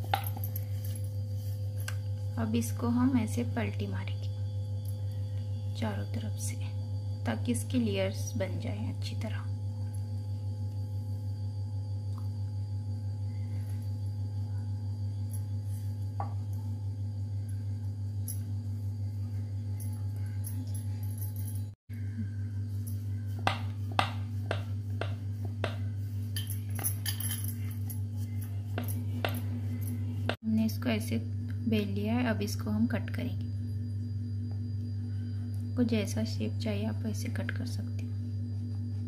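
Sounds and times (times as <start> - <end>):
low electrical hum: 0.0 - 39.0
rolling pin tapping on board: 23.4 - 25.8.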